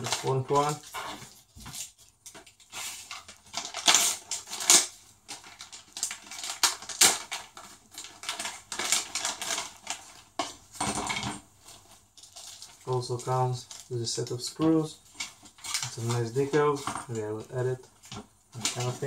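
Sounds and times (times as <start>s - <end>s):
plastic bag crinkling: 0.0s - 10.4s, 11.1s - 19.0s
hard parts clicking and knocking: 10.4s - 11.5s.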